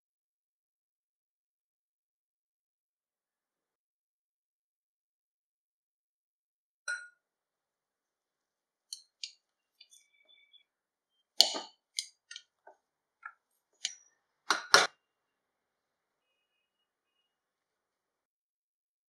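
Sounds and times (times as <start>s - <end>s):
potato masher knocking bowl: 11.4s - 12.4s.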